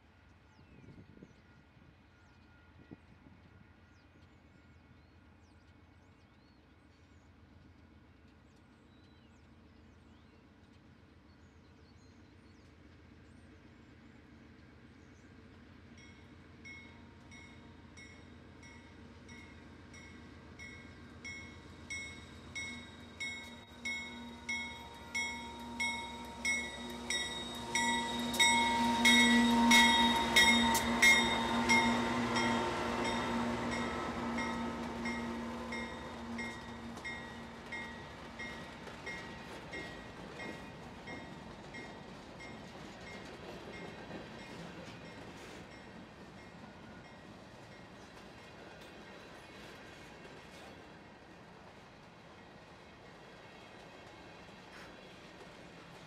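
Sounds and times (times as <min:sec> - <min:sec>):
diesel locomotive engine rumble: 0:00.1 - 0:56.0
bell ringing: 0:22.6 - 0:33.9.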